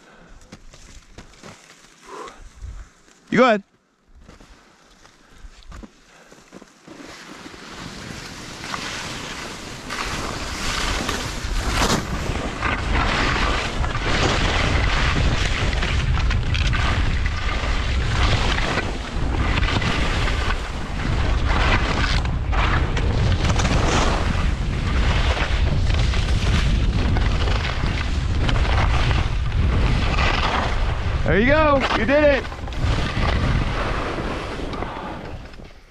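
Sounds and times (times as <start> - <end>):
skis scraping across snow: 0.4 - 3.5, 4.2 - 35.9
wind buffeting microphone: 10.2 - 35.6.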